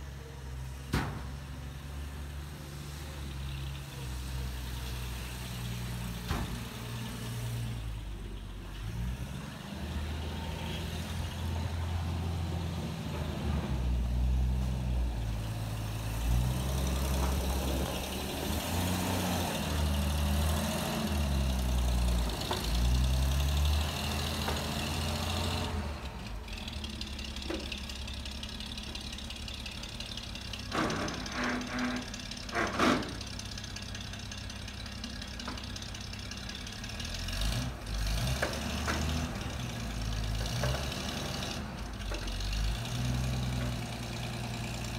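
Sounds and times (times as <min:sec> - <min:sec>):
truck engine rumbling past: 0:00.0 - 0:44.9.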